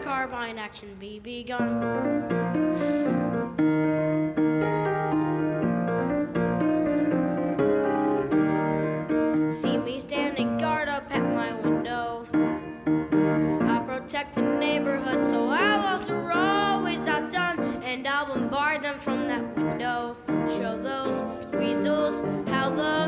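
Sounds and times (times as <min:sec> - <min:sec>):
piano playing: 0:00.0 - 0:00.5, 0:01.6 - 0:23.0
boy singing: 0:09.5 - 0:12.3, 0:13.5 - 0:23.0.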